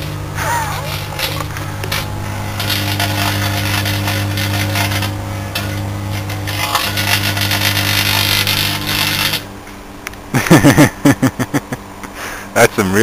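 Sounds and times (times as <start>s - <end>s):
crackling hiss of arcing: 0.0s - 9.5s
deep transformer hum: 0.0s - 13.0s.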